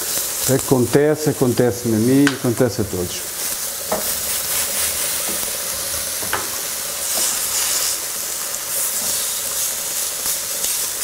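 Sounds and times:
food sizzling in frying pan: 0.0s - 11.0s
utensil knocks: 3.9s - 4.1s, 6.2s - 6.6s.

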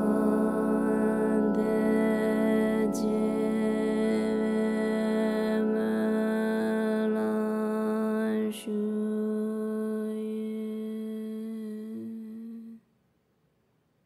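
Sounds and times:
ambient music low drone: 0.0s - 10.1s.

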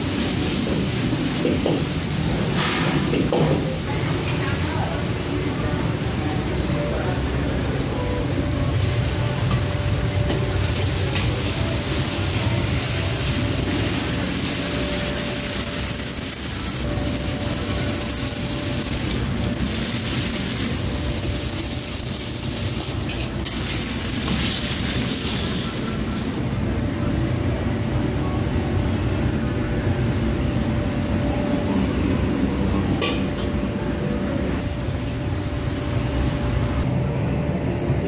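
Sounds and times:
food sizzling: 8.6s - 26.5s.

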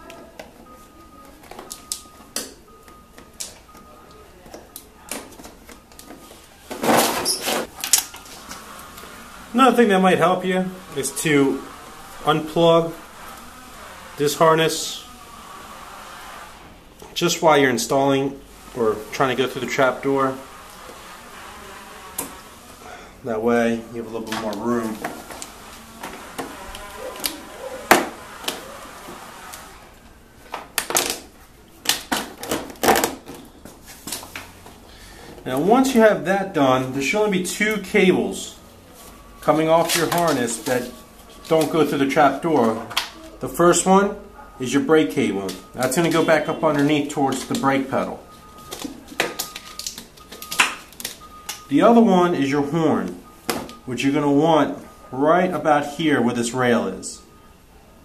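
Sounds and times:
wire and plastic clicks and rustles: 45.4s - 51.7s.

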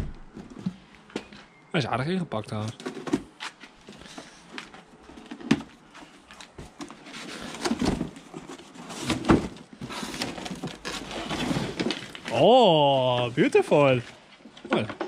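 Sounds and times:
cardboard box rustling and scraping: 6.0s - 12.4s.

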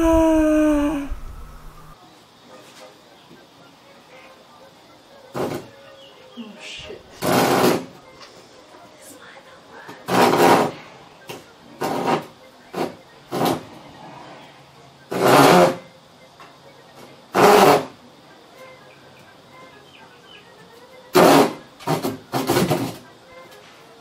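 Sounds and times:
handsaw cutting wood: 7.2s - 7.9s, 10.1s - 10.8s.

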